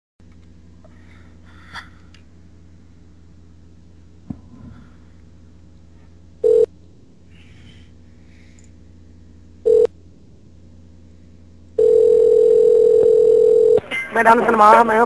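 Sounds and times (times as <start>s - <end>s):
low steady line hum: 0.2s - 15.0s
telephone line beeps: 6.4s - 6.7s, 9.7s - 9.9s, 11.8s - 13.8s.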